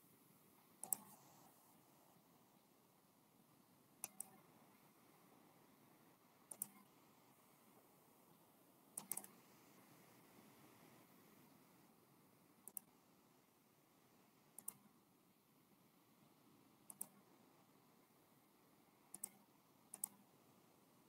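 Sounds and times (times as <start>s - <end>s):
faint quick clicks: 0.8s - 1.2s, 4.0s - 4.4s, 6.5s - 6.9s, 9.0s - 9.4s, 12.6s - 12.9s, 14.6s - 14.8s, 16.9s - 17.2s, 19.1s - 20.2s.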